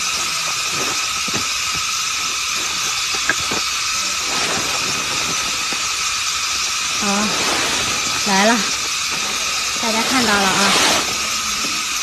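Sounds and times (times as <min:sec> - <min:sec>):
steady high hiss: 0:00.0 - 0:12.0
fabric cover rustling and dragging: 0:10.0 - 0:11.4.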